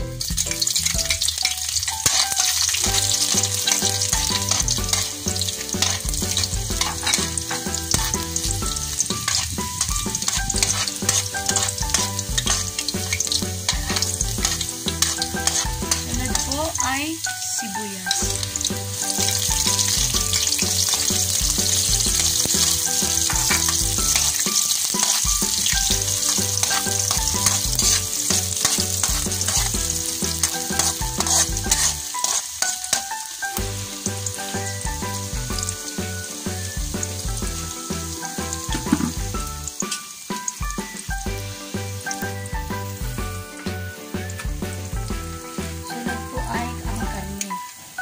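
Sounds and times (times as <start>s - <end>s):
onions sizzling in hot oil: 0.0s - 48.0s
metal spatula scraping pan: 1.8s - 16.8s, 22.2s - 33.1s.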